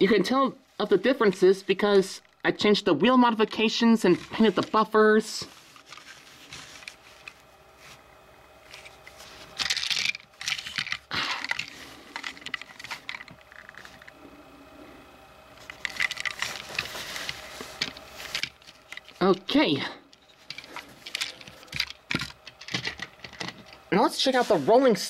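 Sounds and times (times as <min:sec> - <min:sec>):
plastic toys rattling and clicking: 0:03.3 - 0:04.9, 0:05.6 - 0:07.4, 0:08.7 - 0:14.2, 0:15.5 - 0:19.4, 0:20.1 - 0:23.8.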